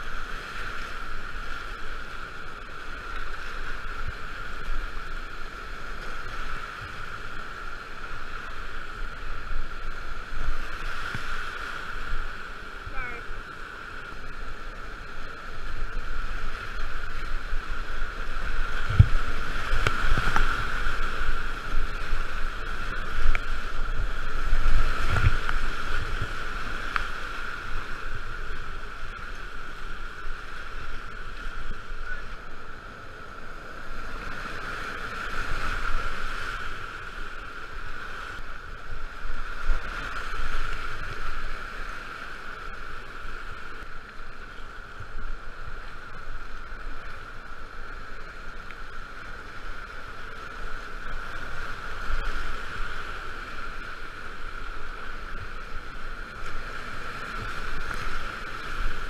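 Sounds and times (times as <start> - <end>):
whitewater rushing and splashing: 0.0 - 59.0.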